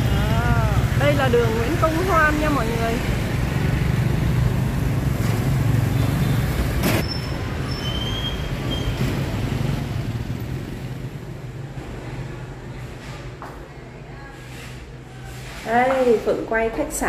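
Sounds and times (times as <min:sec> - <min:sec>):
motorbikes riding past: 0:00.0 - 0:12.7.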